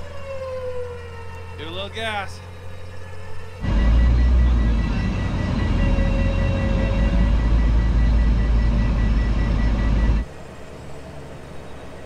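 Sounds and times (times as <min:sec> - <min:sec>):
truck engine rumble: 0:02.6 - 0:10.5
reversing warning beeps: 0:03.6 - 0:10.3.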